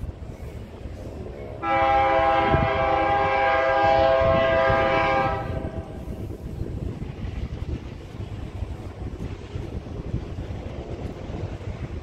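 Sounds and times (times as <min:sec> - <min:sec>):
low train rumble: 0:00.0 - 0:12.0
locomotive air horn blast: 0:01.6 - 0:06.2.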